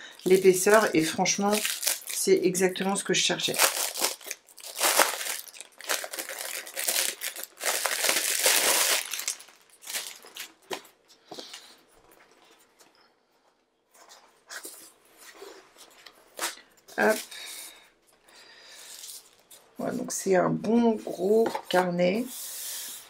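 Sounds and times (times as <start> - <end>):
shrink-wrap tearing and crinkling: 0.3 - 2.4, 3.4 - 10.8.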